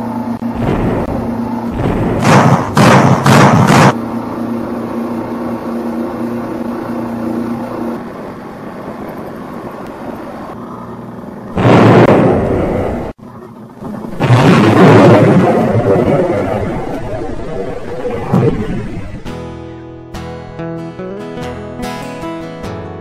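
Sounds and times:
model mechanism humming: 0.0s - 19.3s
loud rushing bursts: 0.4s - 4.0s, 11.6s - 13.2s, 14.0s - 19.4s.

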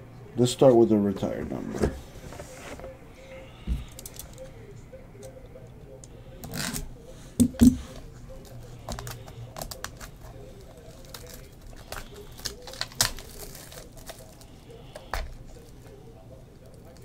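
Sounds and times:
plastic wrap crinkling: 8.0s - 16.0s.

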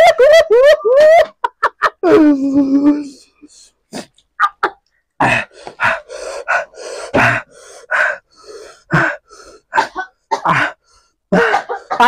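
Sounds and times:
person breathing hard: 3.0s - 4.2s, 5.2s - 12.0s.

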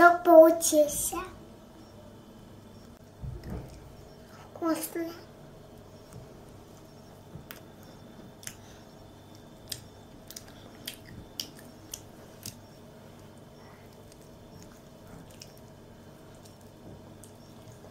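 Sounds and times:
faint room hum: 0.0s - 17.9s
child chewing and lip smacking: 5.8s - 17.9s.

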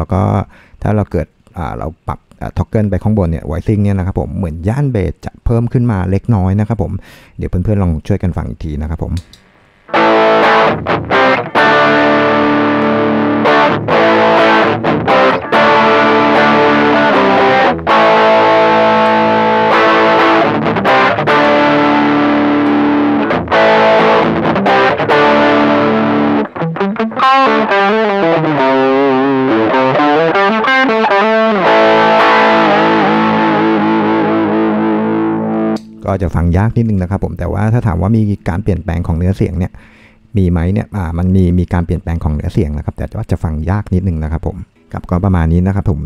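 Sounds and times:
distorted electric guitar chords: 9.5s - 36.1s.

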